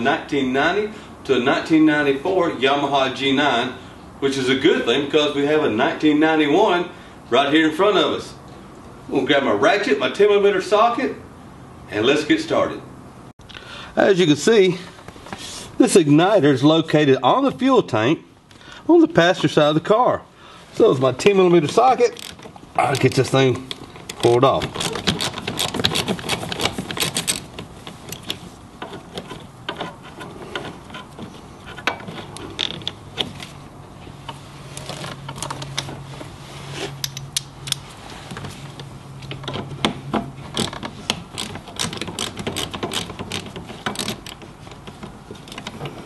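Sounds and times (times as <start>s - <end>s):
hand ratchet clicking: 40.6s - 44.4s.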